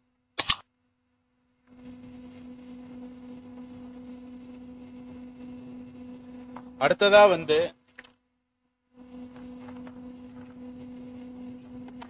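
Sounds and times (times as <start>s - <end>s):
steady low hum: 0.2s - 12.0s
sharp click: 0.4s - 0.6s.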